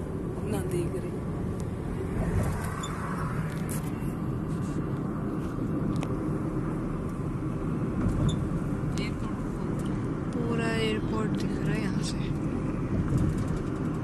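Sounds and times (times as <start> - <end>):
car road and engine noise: 0.0 - 14.0.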